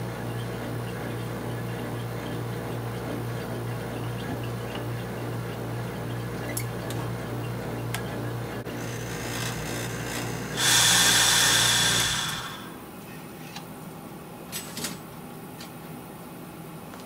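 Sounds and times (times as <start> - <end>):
vacuum pump humming: 0.0 - 12.9
air hissing with whistle: 10.6 - 12.8.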